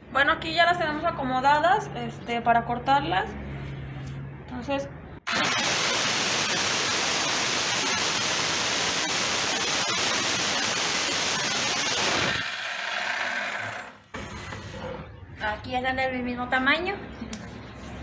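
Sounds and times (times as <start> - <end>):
circular saw cutting wood: 5.3 - 14.0.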